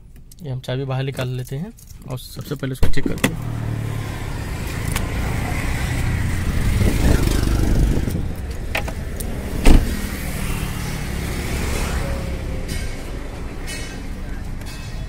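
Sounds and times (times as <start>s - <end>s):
low vehicle hum: 3.2s - 15.0s
car door thump shut: 9.6s - 10.0s
car door unlatching: 9.6s - 10.0s.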